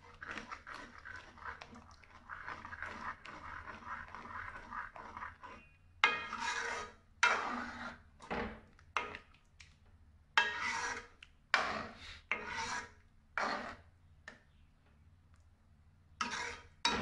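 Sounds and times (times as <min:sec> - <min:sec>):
metal ladle scraping metal pot: 0:00.1 - 0:08.1, 0:10.4 - 0:13.8, 0:16.2 - 0:17.0.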